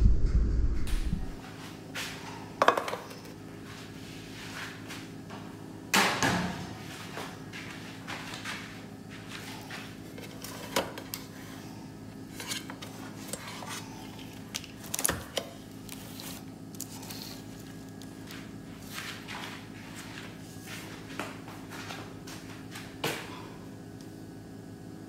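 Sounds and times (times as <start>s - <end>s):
low hum: 0.0s - 1.5s.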